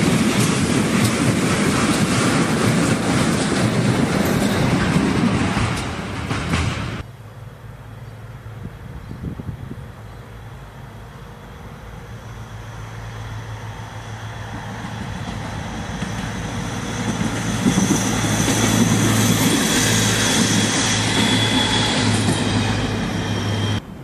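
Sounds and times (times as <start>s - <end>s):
railcar engine hum: 0.0s - 24.0s
wheels rumbling on rail: 0.0s - 24.0s
high wheel squeal: 12.0s - 23.8s.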